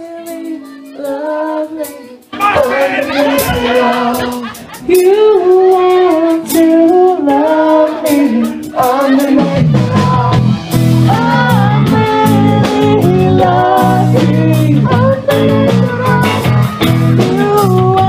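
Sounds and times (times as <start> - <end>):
bass guitar: 0.0 - 18.0
woman singing: 0.0 - 18.0
drum beat: 2.4 - 6.8.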